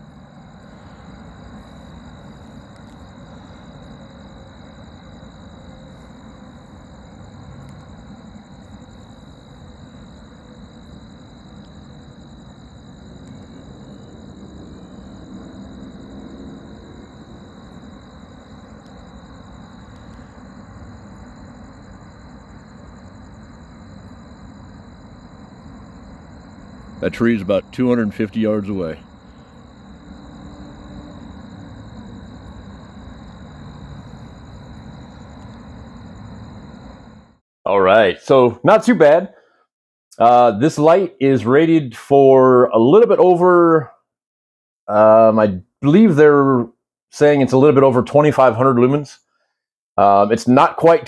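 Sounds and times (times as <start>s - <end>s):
distant road traffic rumble: 0.0s - 37.4s.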